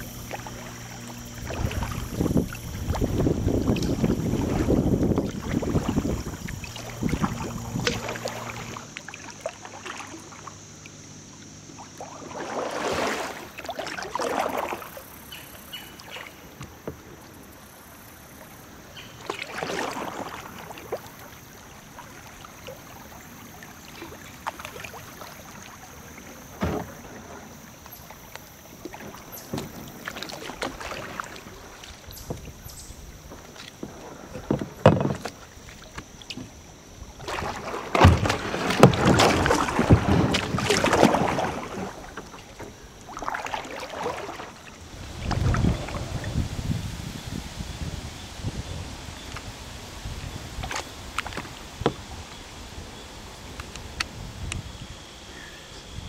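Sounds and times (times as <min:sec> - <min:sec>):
water splash: 0:00.0 - 0:10.5, 0:11.8 - 0:15.0, 0:19.2 - 0:21.3, 0:23.8 - 0:32.6, 0:37.2 - 0:46.4
paddle blades dipping: 0:00.0 - 0:47.3, 0:48.8 - 0:55.7
water rushing and lapping: 0:00.0 - 0:55.7.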